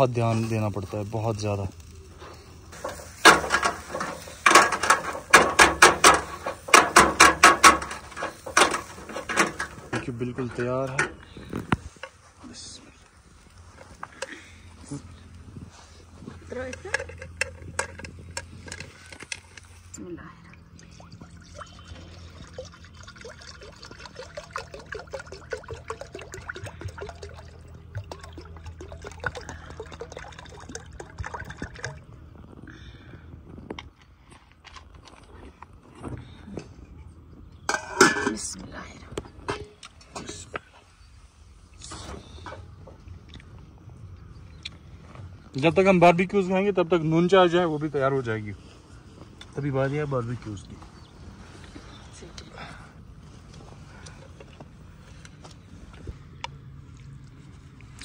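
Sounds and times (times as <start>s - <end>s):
liquid glugging from plastic bottle: 20.6s - 32.2s.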